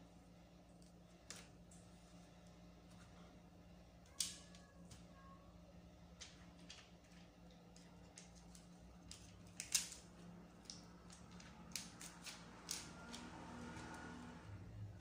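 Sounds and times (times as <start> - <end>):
plastic packaging clicks and crinkles: 6.2 - 13.3.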